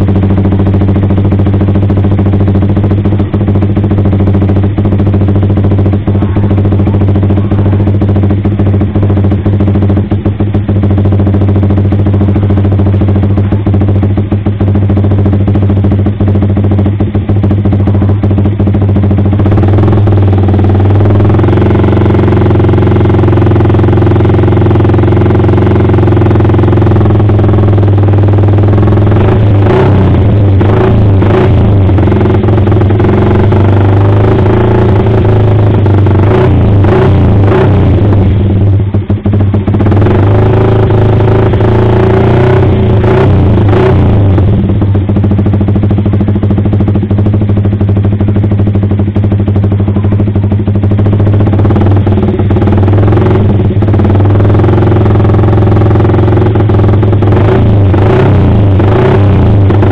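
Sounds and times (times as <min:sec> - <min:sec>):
motorcycle engine idling: 0:00.0 - 0:59.9
short sharp engine bursts: 0:01.8 - 0:14.9.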